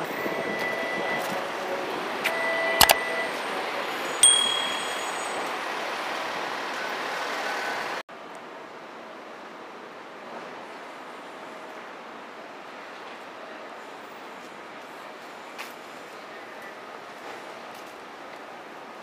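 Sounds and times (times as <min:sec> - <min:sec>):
traffic hum: 0:00.0 - 0:08.0
sharp clicks: 0:02.8 - 0:03.0
bell ding: 0:04.2 - 0:05.7.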